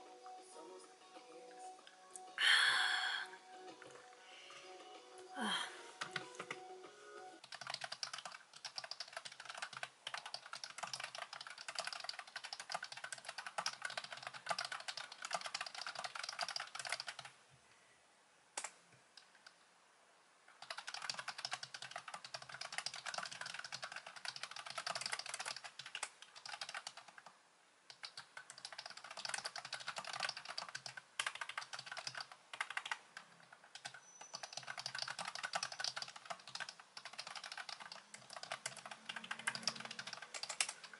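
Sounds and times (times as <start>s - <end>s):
fast typing on keyboard: 6.0s - 6.6s, 7.4s - 17.4s, 20.5s - 27.3s, 27.9s - 40.9s.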